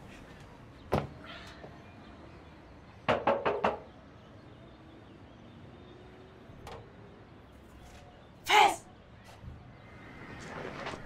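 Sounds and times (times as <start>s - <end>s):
knocks on a door: 3.1s - 3.9s.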